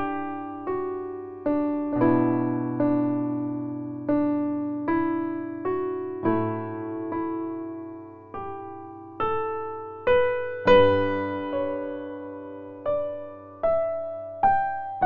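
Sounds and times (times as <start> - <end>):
slow piano music: 0.0 - 15.0.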